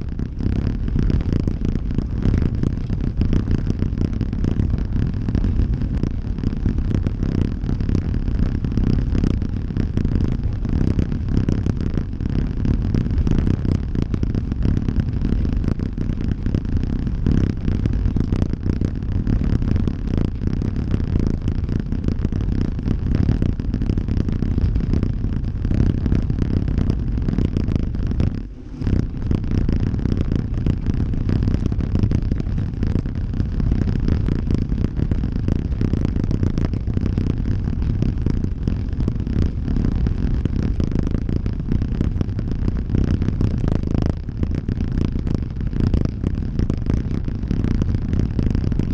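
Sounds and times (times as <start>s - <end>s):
wind buffeting microphone: 23.5s - 37.0s.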